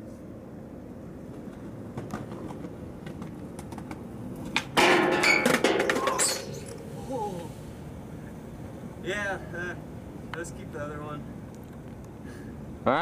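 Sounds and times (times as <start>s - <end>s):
skateboard rolling on concrete: 0.0s - 10.8s
skateboard pop: 1.9s - 6.3s
skateboard scraping metal handrail: 2.0s - 6.8s.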